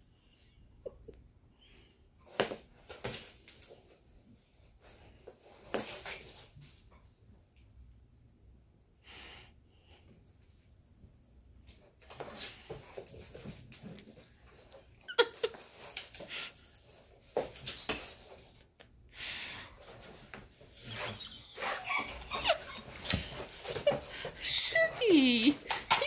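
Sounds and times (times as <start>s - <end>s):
dog whining and grumbling: 20.7s - 26.0s.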